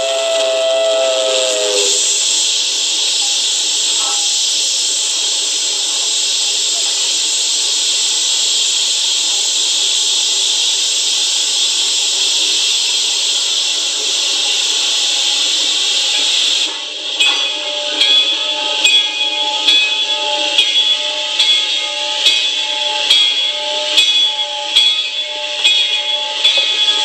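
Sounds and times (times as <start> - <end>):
steam whistle chord: 0.0 - 2.6, 17.1 - 27.0
steam hissing: 0.0 - 27.0.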